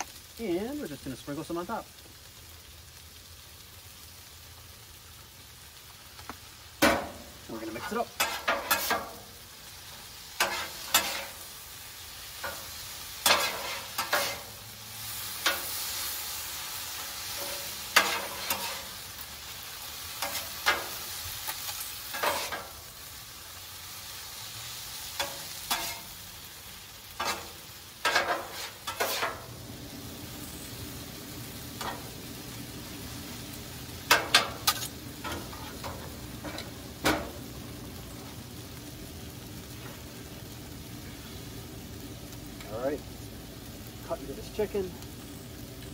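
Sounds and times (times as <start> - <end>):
food sizzling in oil: 0.0 - 45.9
metal spatulas scraping on griddle: 6.8 - 9.3, 10.3 - 11.5, 12.4 - 19.1, 19.9 - 22.8, 25.0 - 26.2, 27.2 - 29.5, 31.8 - 32.1, 34.0 - 37.3.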